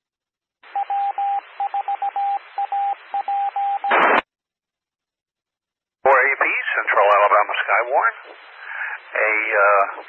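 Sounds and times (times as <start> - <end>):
morse code beeps: 0.7 - 4.0
radio hiss: 6.1 - 10.0.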